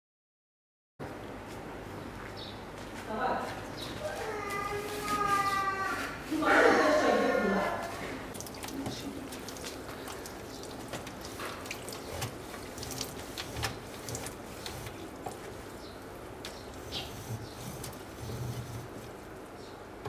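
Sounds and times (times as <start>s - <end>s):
cloth wiping plastic: 8.8s - 15.8s, 16.7s - 19.3s.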